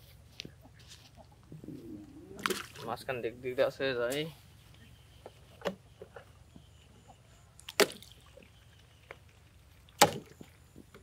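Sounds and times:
objects splashing into water: 2.4 - 2.9, 7.6 - 8.3.

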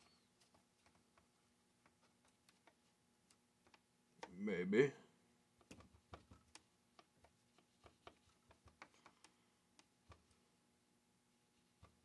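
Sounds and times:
small clicks and taps of parts: 0.0 - 4.4, 5.6 - 10.4.

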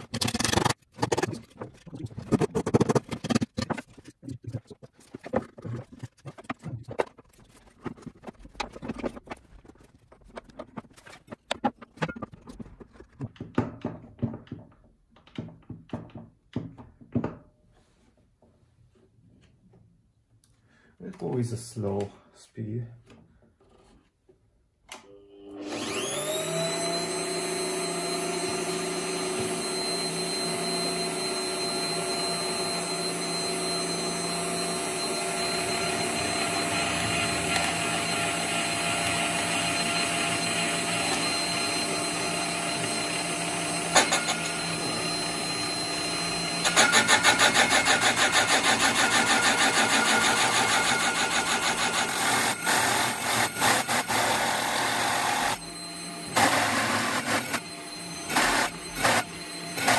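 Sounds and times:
drill press whine: 25.0 - 59.9
hole saw cutting board: 25.6 - 59.9.

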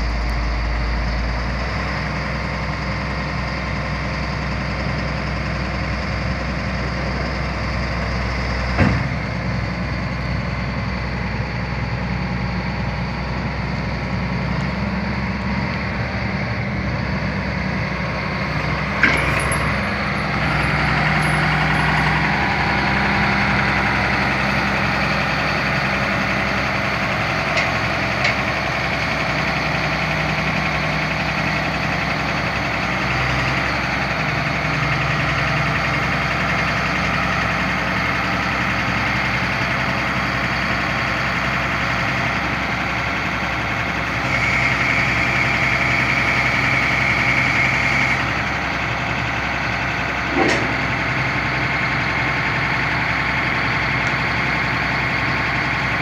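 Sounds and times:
diesel engine running: 0.0 - 56.0
sharp metal clank: 19.0 - 22.2.

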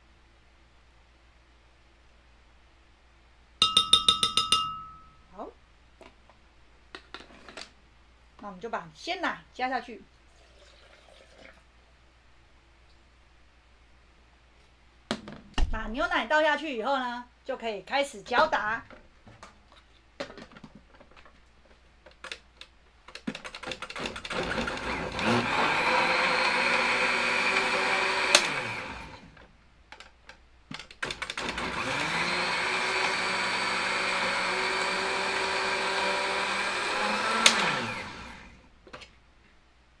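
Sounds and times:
blender motor running: 24.0 - 29.3, 31.1 - 38.6.

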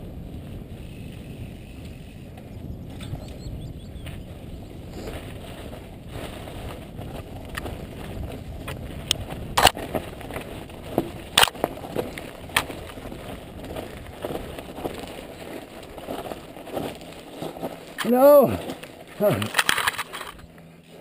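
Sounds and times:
bike tyres rumbling over stones: 0.0 - 21.0
bike clattering over rocks: 8.6 - 20.4.

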